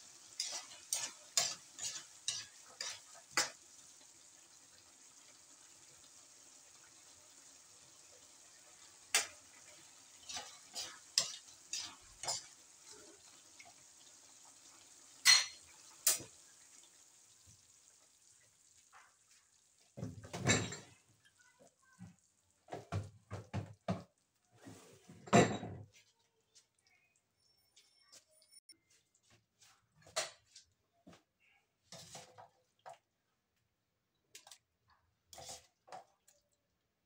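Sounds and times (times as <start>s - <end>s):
metal spatula scraping a wok: 0.1s - 3.6s, 10.1s - 12.6s, 35.3s - 35.8s
kitchenware clatter and knocks: 20.0s - 21.1s, 22.7s - 26.0s.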